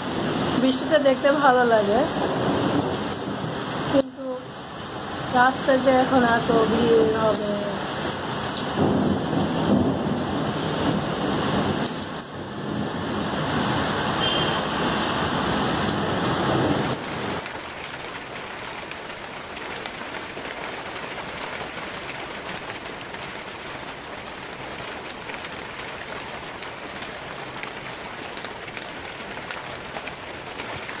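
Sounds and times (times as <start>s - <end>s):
heavy rain falling: 0.0s - 31.0s
rain drop ticks: 3.9s - 4.2s, 5.2s - 9.8s, 11.8s - 13.0s.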